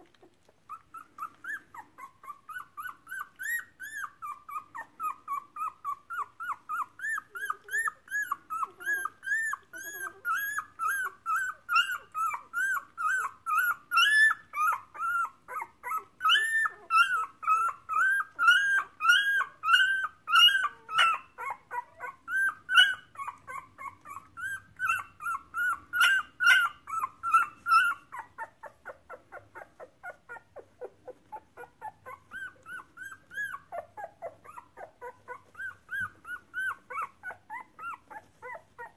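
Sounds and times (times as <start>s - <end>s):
puppy whining: 0.0s - 38.9s.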